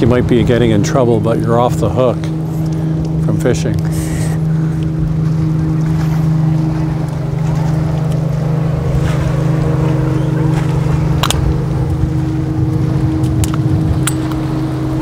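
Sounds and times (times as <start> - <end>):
low motor hum: 0.0 - 15.0
wind buffeting microphone: 0.0 - 15.0.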